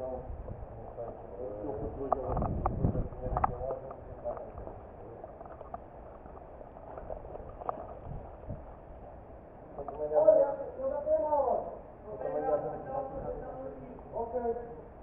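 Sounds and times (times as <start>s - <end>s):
rustling on dry grass: 2.3s - 9.2s.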